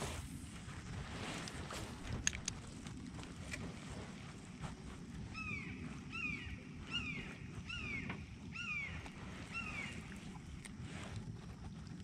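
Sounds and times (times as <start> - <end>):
low background rumble: 0.0 - 12.0
bird whistling falling call: 5.4 - 10.0.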